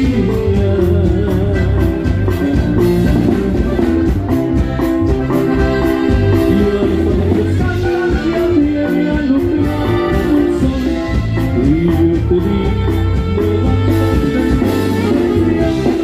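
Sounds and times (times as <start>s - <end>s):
band playing dance music: 0.0s - 16.0s.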